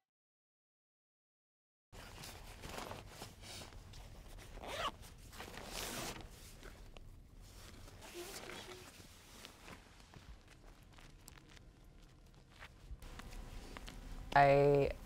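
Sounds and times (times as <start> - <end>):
fabric and straps rustling: 2.0 - 14.9
low steady rumble: 2.4 - 15.0
backpack zipper pulled: 4.5 - 6.3.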